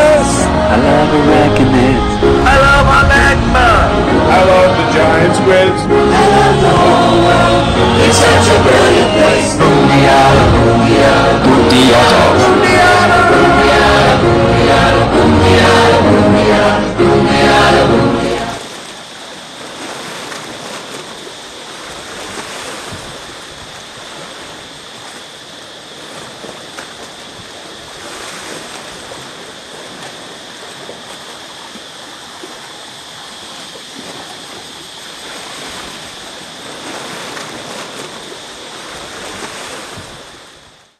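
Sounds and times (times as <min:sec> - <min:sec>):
sea surf: 0:00.0 - 0:40.9
wind on microphone: 0:00.8 - 0:04.3, 0:06.5 - 0:12.7, 0:22.0 - 0:24.3, 0:39.1 - 0:40.5.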